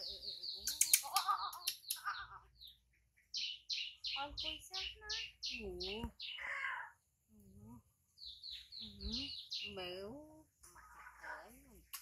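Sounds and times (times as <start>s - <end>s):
bird chirping: 0.0s - 12.0s
sharp clicks: 0.6s - 2.1s
soft voice: 4.5s - 7.9s.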